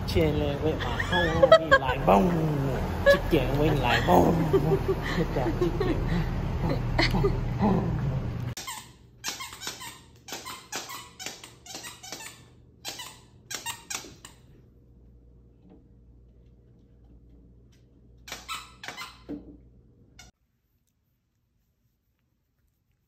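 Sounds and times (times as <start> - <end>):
squeaky toy squeaks: 8.6 - 14.4, 18.3 - 19.3.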